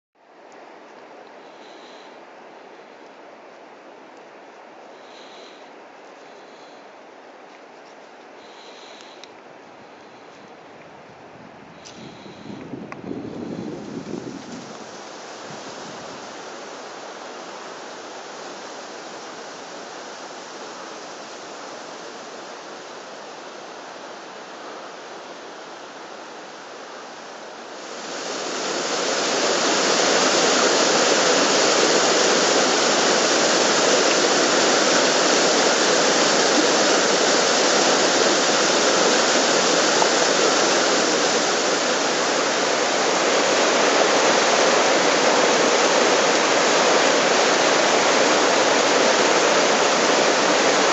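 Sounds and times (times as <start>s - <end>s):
water rushing over rocks: 13.2s - 50.9s.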